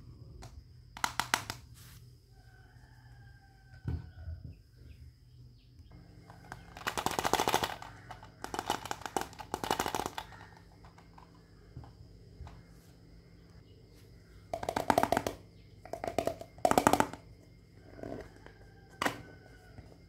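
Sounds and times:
rapid plastic clicking: 6.2 - 11.4.

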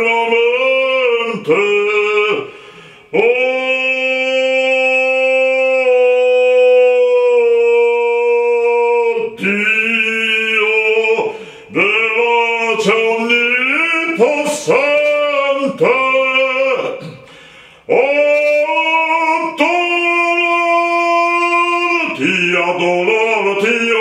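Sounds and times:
man singing operatically: 0.0 - 24.0
quick breaths: 2.5 - 3.1, 11.3 - 11.7, 17.0 - 17.9.

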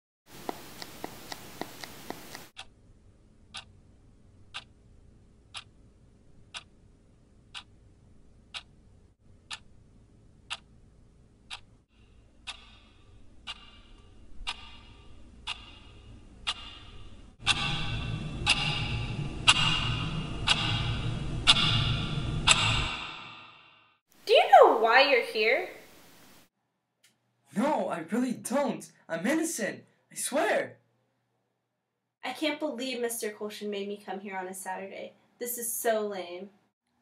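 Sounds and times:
clock ticking: 3.5 - 3.7, 4.5 - 4.7, 5.5 - 5.8, 6.5 - 6.8, 7.5 - 7.7, 8.5 - 8.8, 9.4 - 9.7, 10.5 - 10.7, 11.5 - 21.9.

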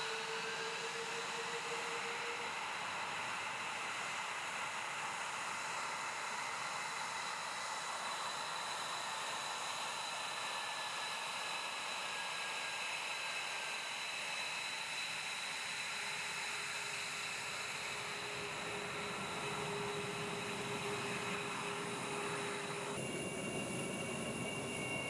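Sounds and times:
jet engines idling: 17.7 - 24.7.

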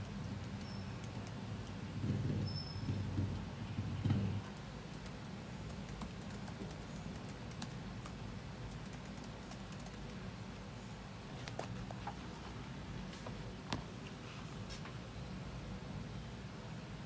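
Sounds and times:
laptop keyboard typing: 0.0 - 2.3, 2.9 - 10.3.

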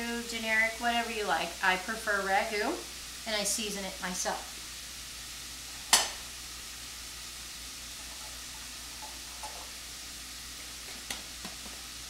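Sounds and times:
sausage frying in a pan: 0.0 - 12.0.

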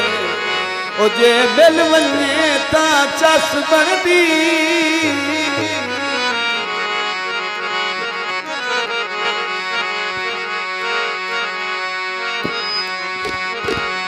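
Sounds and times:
person singing folk song: 0.0 - 6.6
harmonium melody: 0.0 - 14.0.

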